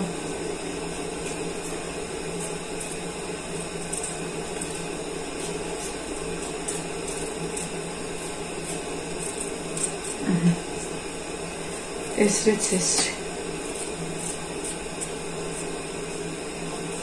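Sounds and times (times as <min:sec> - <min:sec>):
steady low hum: 0:00.0 - 0:17.0
knife scraping potato: 0:00.8 - 0:11.0, 0:12.8 - 0:17.0.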